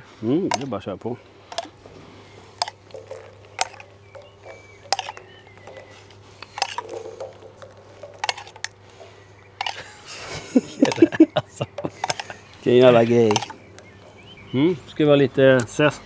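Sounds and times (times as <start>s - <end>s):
steady low hum: 0.0s - 16.0s
kitchen utensils clinking: 2.6s - 8.8s, 9.6s - 14.3s.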